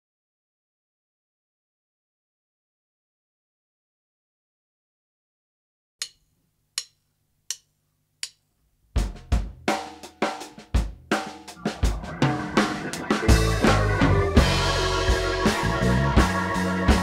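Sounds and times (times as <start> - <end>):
count-in clicks: 6.8 - 8.4
funk band playing a groove: 9.0 - 17.0.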